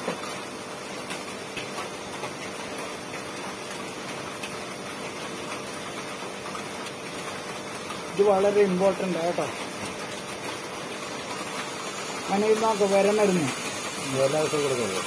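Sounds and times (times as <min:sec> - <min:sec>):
room hiss: 0:11.6 - 0:15.0.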